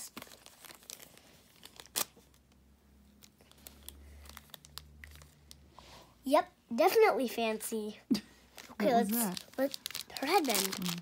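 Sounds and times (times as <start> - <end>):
plastic wrapper crinkling: 0.0 - 5.6, 8.5 - 11.0.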